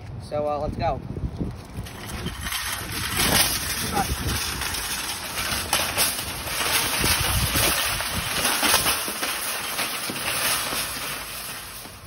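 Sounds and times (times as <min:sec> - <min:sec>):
wind on microphone: 0:00.0 - 0:05.1, 0:06.3 - 0:08.9
wheels rumbling on concrete: 0:00.0 - 0:12.0
wire basket rattling: 0:01.6 - 0:12.0.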